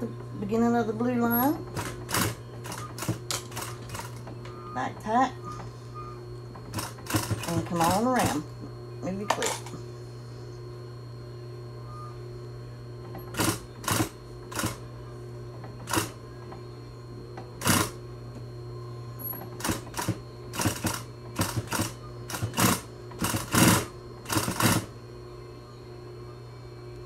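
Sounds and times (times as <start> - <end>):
steady machine hum: 0.0 - 27.0
sewing machine stitching in bursts: 6.7 - 8.4, 17.6 - 18.0, 19.6 - 24.9.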